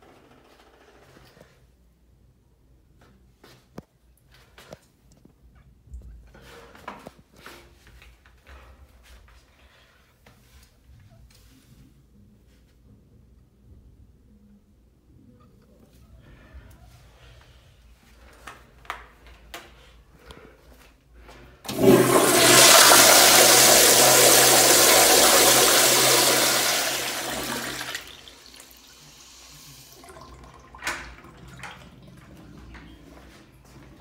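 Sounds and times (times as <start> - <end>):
toilet flushing: 21.7 - 33.8.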